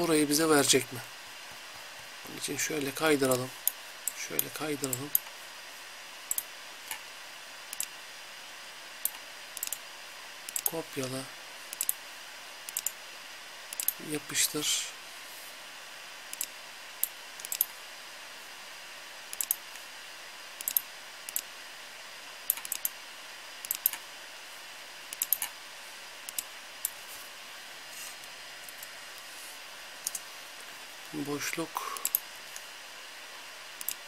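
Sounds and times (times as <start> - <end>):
faint hiss: 23.4 - 34.0
mouse buttons clicking: 25.1 - 25.5.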